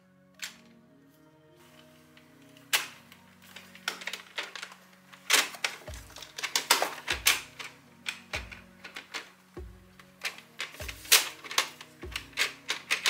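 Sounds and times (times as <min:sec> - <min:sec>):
hard plastic clicking and knocking: 0:05.3 - 0:13.0.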